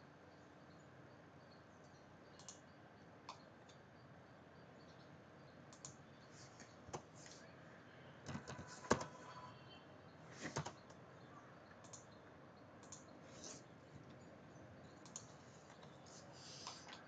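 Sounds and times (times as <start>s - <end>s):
keystrokes: 2.3s - 2.7s, 5.7s - 6.0s, 8.2s - 9.2s, 10.4s - 11.0s, 11.7s - 12.2s, 12.8s - 14.2s, 14.8s - 17.0s
computer mouse clicks: 2.3s - 3.8s, 5.7s - 7.5s, 8.2s - 9.2s, 10.3s - 11.0s, 11.7s - 12.2s, 12.8s - 14.2s, 14.8s - 17.0s.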